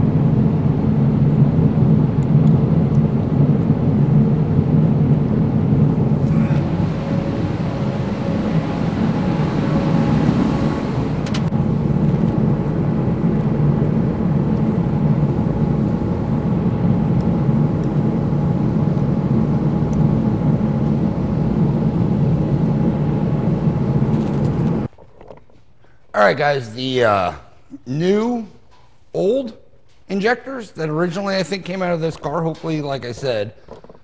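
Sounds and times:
machine drone with hum: 0.0s - 25.0s.

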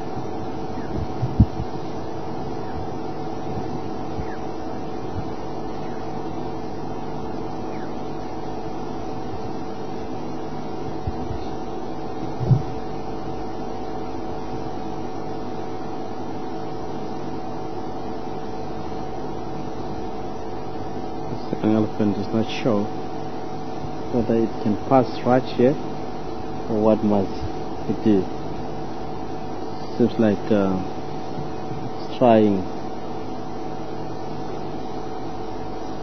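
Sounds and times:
steady low hum: 0.0s - 36.0s
low thump: 12.4s - 12.8s.

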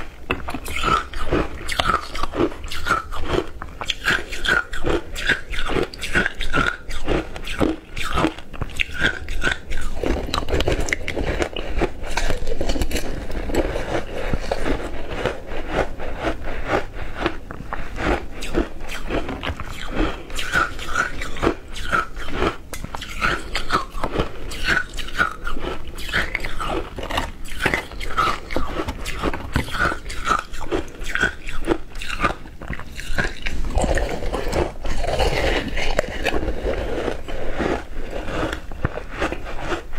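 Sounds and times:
crunching and chewing ice: 0.0s - 39.9s.

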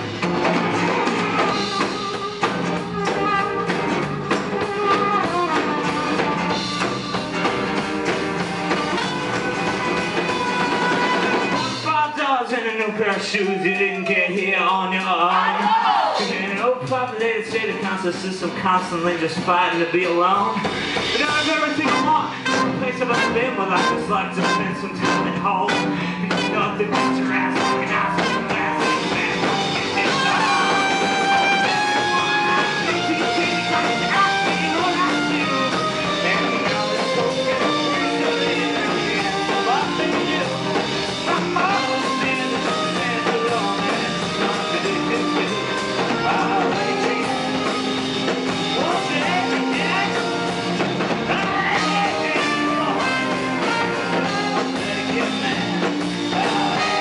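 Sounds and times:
strummed acoustic guitar: 0.0s - 12.1s
drum kit: 0.0s - 57.0s.

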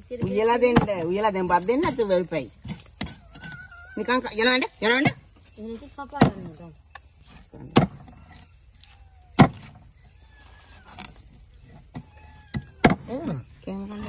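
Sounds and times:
insects chirring: 0.0s - 14.0s
machete chopping fish on board: 7.7s - 8.0s, 9.4s - 9.7s.

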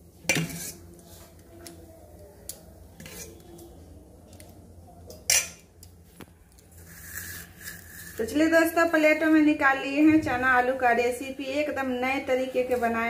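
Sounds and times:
metal spoon scraping steel pot: 0.3s - 0.9s, 3.0s - 3.5s, 6.8s - 8.9s.

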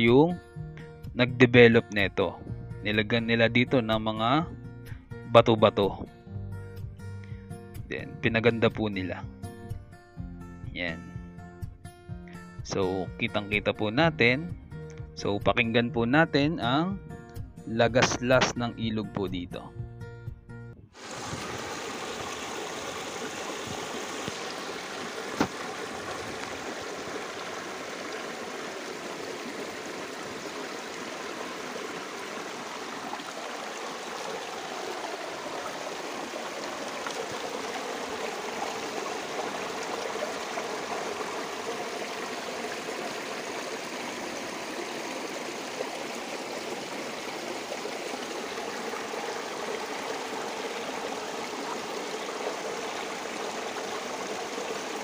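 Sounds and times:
river babbling over stones: 21.0s - 55.0s.

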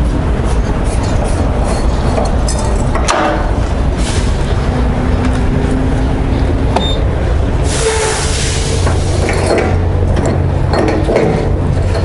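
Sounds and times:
diesel engine rumble: 0.0s - 12.0s
burst of hiss: 7.6s - 9.3s.

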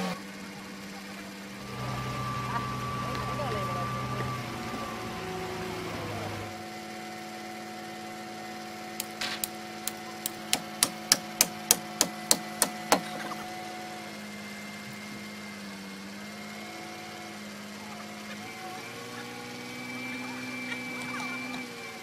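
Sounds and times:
truck engine idling: 0.0s - 7.2s, 8.6s - 14.1s
hammer striking with ringing cracks: 9.0s - 13.2s.

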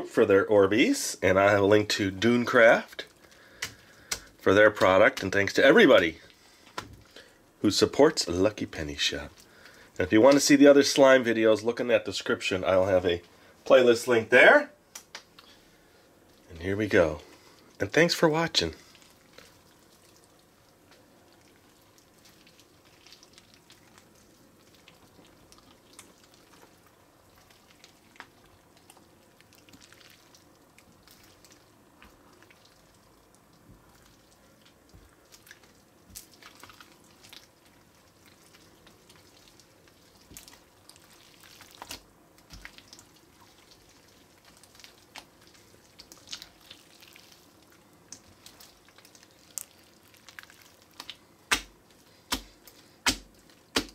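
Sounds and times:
wet squishing slime: 0.7s - 53.9s
sticky pops and clicks: 3.6s - 5.3s, 51.0s - 51.7s.

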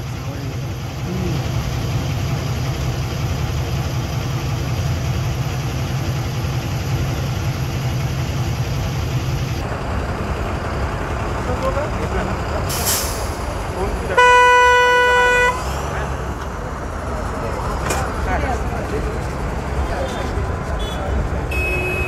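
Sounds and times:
diesel bus engine running: 0.0s - 22.0s.

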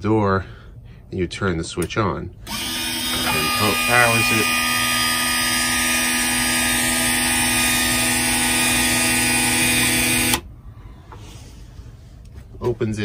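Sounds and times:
electric gear motor whining: 2.5s - 10.4s.

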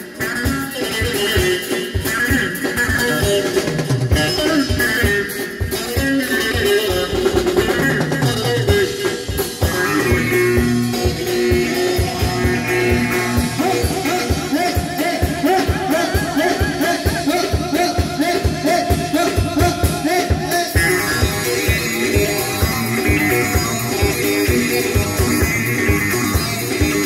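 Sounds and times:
dance music from live band: 0.0s - 27.0s
drum kit beat: 0.0s - 27.0s
keyboard melody: 8.2s - 18.2s, 20.5s - 27.0s.

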